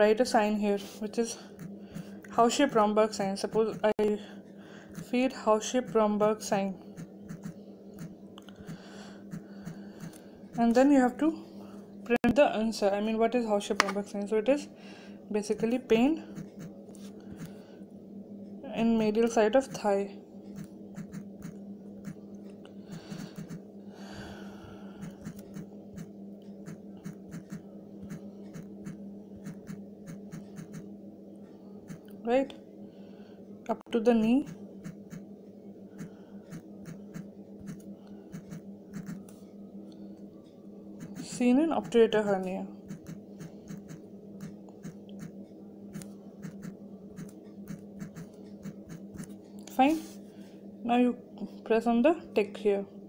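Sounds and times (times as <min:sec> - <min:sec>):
low electrical hum: 0:00.0 - 0:53.0
fingertips tapping touchscreen: 0:46.0 - 0:49.3.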